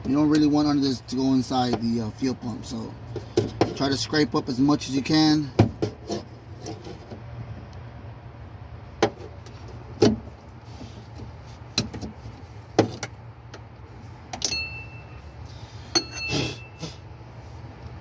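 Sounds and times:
steady low hum: 0.0s - 18.0s
metal clink: 14.4s - 15.2s, 15.9s - 16.8s.

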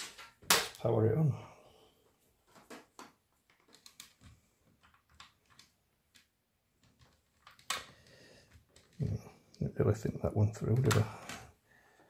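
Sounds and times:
faint clicks and taps: 2.5s - 9.6s.

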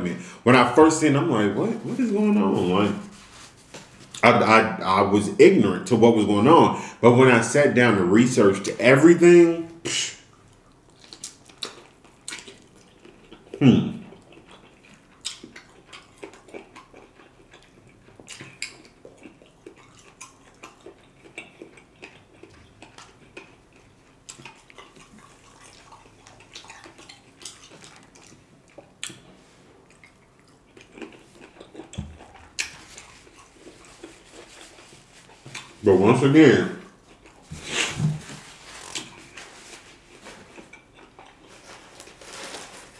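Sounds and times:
wet chewing and lip smacks: 10.2s - 35.8s, 36.8s - 37.5s, 40.5s - 41.5s.

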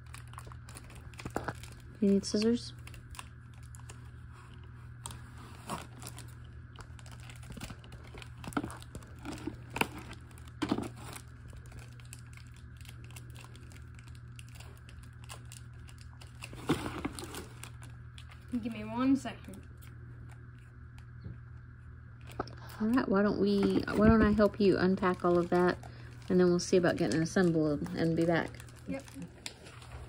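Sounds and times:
packaging crinkling and tearing: 0.0s - 18.8s, 22.2s - 30.0s
steady low hum: 0.0s - 30.0s.

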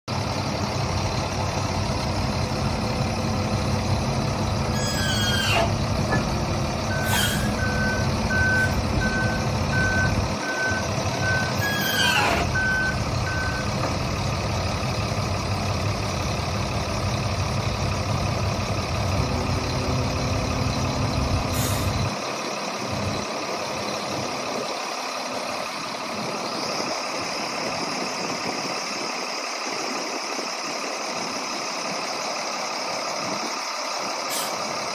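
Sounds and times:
diesel engine running: 0.1s - 34.9s
warning alarm beeping: 6.9s - 13.7s.

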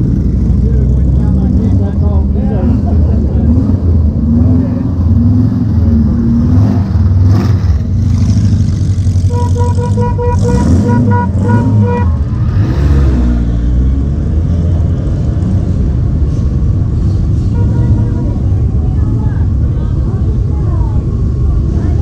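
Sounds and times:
horn tooting: 9.1s - 12.4s, 17.5s - 18.6s.

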